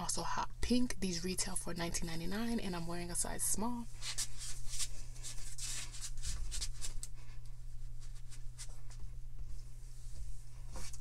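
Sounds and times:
steady low hum: 0.0 - 11.0
fabric rustling and rubbing: 7.6 - 11.0.

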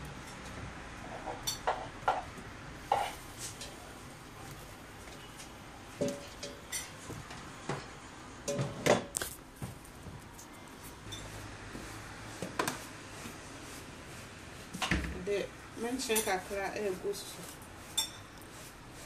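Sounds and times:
kitchenware knocks and clinks: 1.2 - 2.3, 6.0 - 7.0, 8.5 - 9.1.

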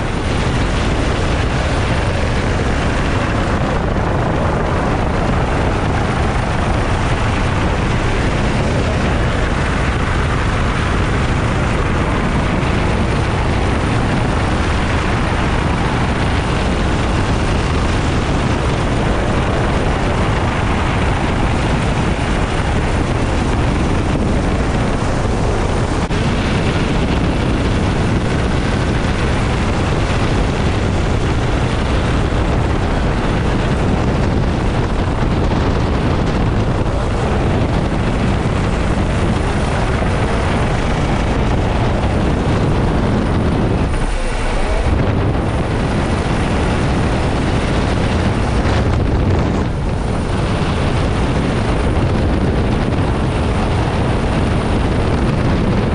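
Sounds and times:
helicopter engine and rotor: 0.0 - 55.9.

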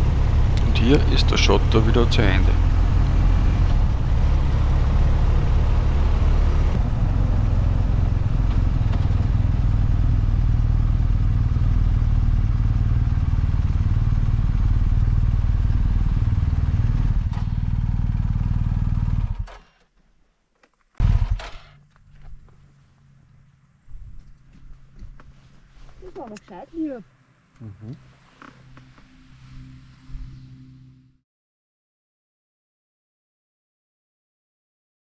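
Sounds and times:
motorcycle engine running: 0.0 - 19.5
wind and road noise: 0.0 - 19.5, 21.0 - 31.1.

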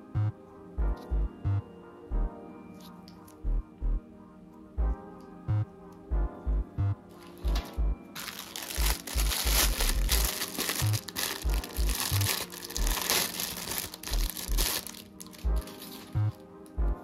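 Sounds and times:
background music with bass beat: 0.0 - 2.4, 3.4 - 17.0
plastic bag crinkling: 8.2 - 16.4.

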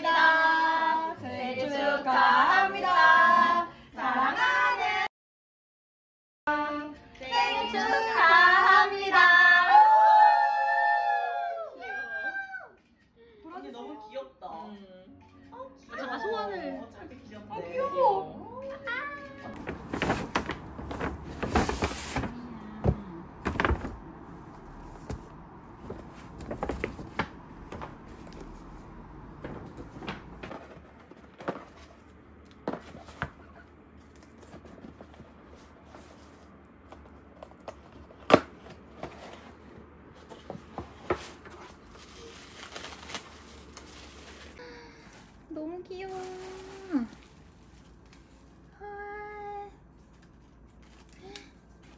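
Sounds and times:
tissue paper rustling: 19.5 - 31.2, 40.7 - 48.8
paper bag and box handling: 19.6 - 37.1, 38.8 - 48.7.

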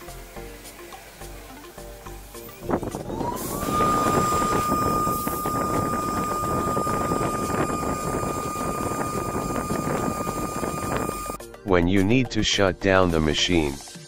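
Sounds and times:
machine rushing noise: 2.6 - 11.4
router spindle whine: 2.7 - 11.4.

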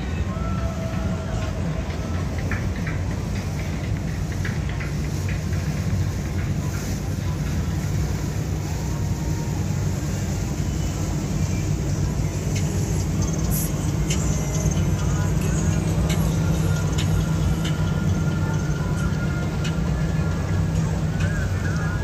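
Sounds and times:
motorboat engine rumbling: 0.0 - 22.0.

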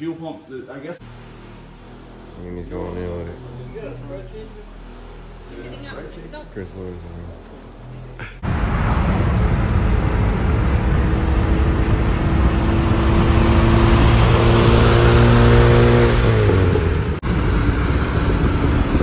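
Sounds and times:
car engine at speed: 1.0 - 19.0
wind noise: 8.4 - 19.0.

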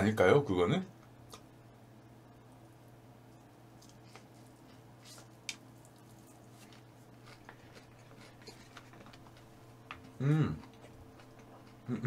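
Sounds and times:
low steady hum: 0.0 - 12.0
chewing and food handling clicks: 1.0 - 1.5, 5.4 - 11.9.

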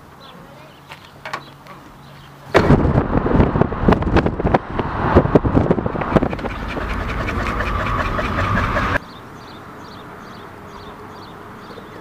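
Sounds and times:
wind and road noise in a car: 2.5 - 9.0
dog panting: 6.2 - 9.0.

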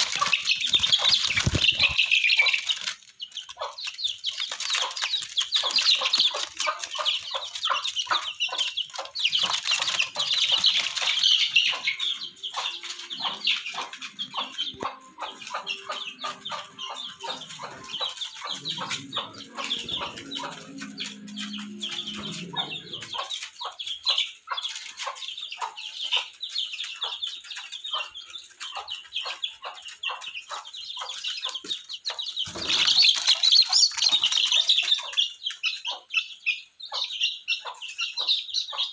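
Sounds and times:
scuffling and wing flapping: 0.0 - 11.8, 26.8 - 35.3
chicks peeping: 0.0 - 38.9.

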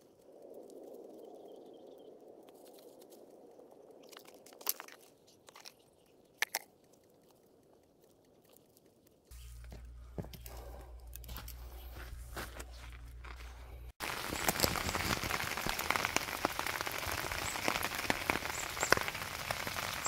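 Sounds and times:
hands rustling dry leaves and soil: 7.2 - 20.0
sharp cracks: 14.0 - 20.0.

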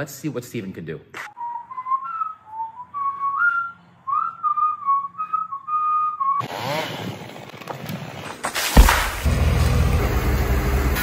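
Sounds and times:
person whistling a tune: 1.3 - 6.4.

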